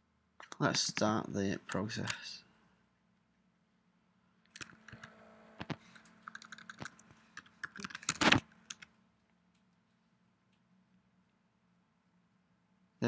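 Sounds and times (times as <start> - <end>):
keyboard key clicks: 4.6 - 8.9.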